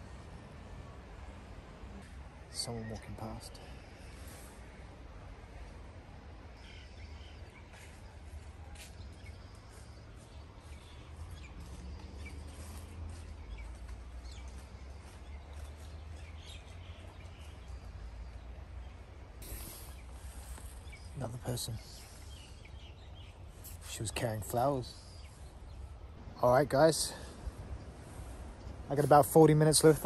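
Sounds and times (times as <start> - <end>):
bird chirps: 6.5 - 26.2.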